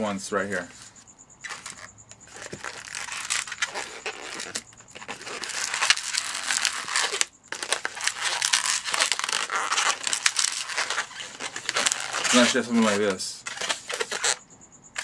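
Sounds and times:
balloon rubbing under fingers: 0:00.8 - 0:12.6.

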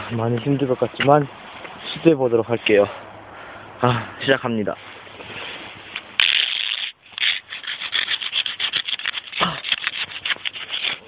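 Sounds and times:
knife striking ice: 0:06.2 - 0:11.0
person grunting: 0:09.4 - 0:09.6.

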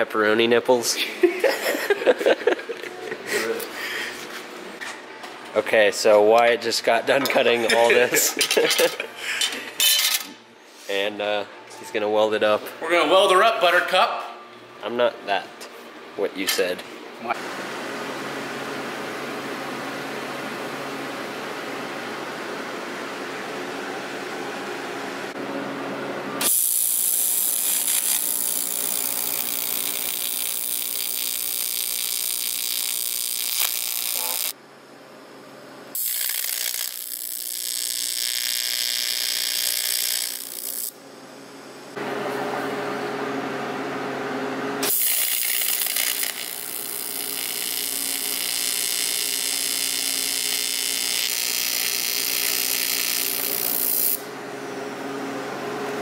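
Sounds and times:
welding arc buzz and hiss: 0:26.3 - 0:34.6, 0:35.9 - 0:41.0, 0:44.8 - 0:54.3.

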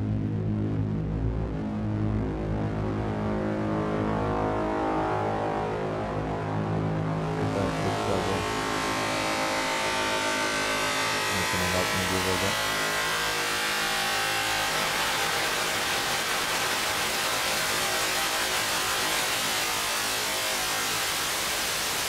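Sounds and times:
buzzing drone of held tones: 0:00.0 - 0:22.0
wavering low tone: 0:07.3 - 0:16.1
hiss-like noise wash: 0:11.2 - 0:22.0.

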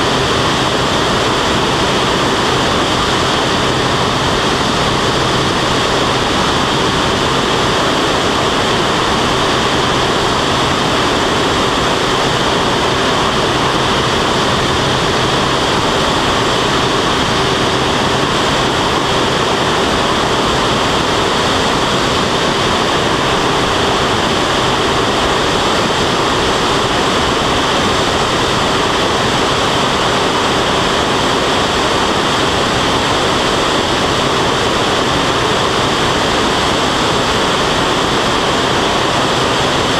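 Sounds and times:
rush of airflow: 0:00.0 - 0:39.9.

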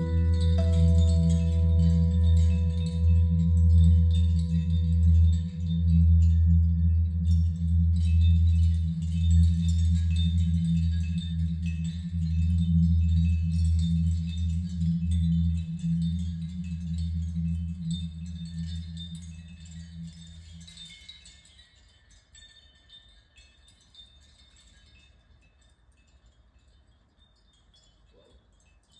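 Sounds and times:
low held note: 0:00.0 - 0:08.4
wind chimes tinkling: 0:00.0 - 0:28.9.

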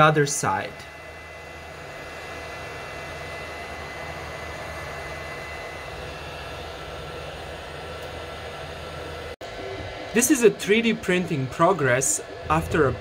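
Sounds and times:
high-pitched whine: 0:00.0 - 0:13.0
printer fans and motors whirring: 0:00.0 - 0:13.0.

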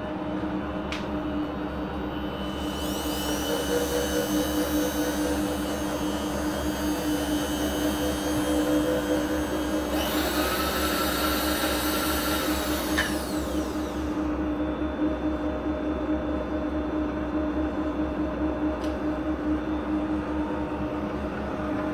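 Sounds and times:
motor and gear whine: 0:00.0 - 0:21.9.

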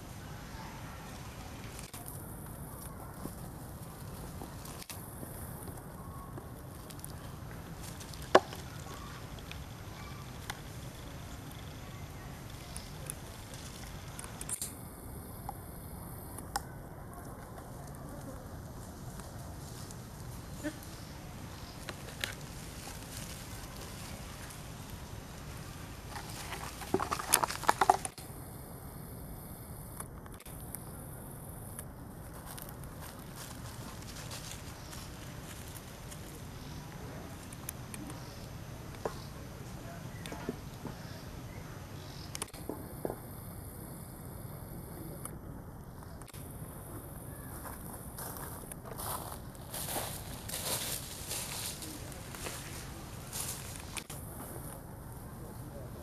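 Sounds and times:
dry leaves crackling: 0:00.0 - 0:14.6, 0:17.1 - 0:28.2, 0:32.2 - 0:40.3, 0:46.4 - 0:55.4
faint outdoor hiss: 0:00.0 - 0:56.0
low background noise: 0:00.0 - 0:56.0.

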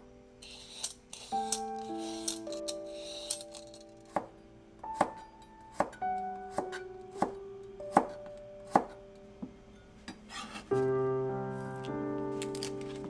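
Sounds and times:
soft piano music: 0:00.0 - 0:13.0
peeler scraping cucumber: 0:00.4 - 0:03.5.

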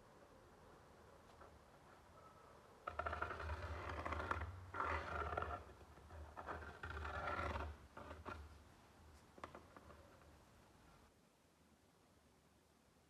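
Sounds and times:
pen scratching on wood: 0:02.8 - 0:08.5.

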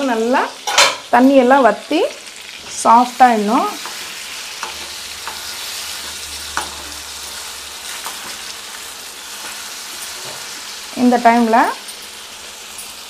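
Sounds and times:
chicken sizzling in a pan: 0:00.0 - 0:13.0.

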